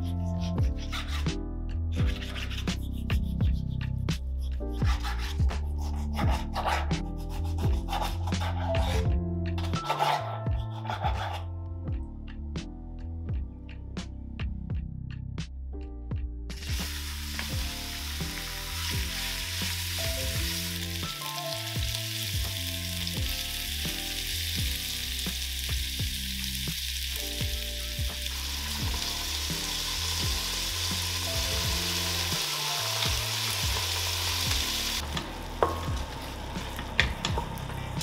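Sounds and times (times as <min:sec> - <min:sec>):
meat sizzling in hot oil: 0:16.6 - 0:35.0.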